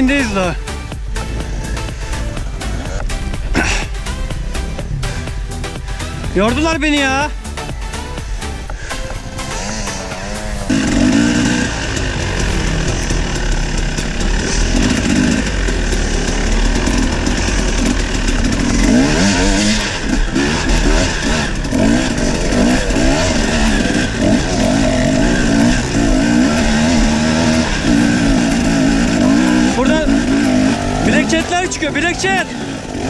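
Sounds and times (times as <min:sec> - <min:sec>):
dirt bike engine under load: 0:08.3 - 0:33.0.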